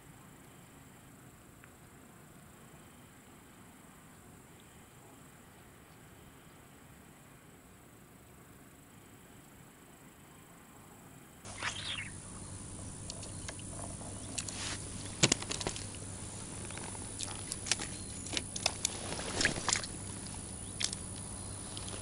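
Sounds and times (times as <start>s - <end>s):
faint steady hum: 0.0s - 22.0s
short chirp: 11.5s - 12.2s.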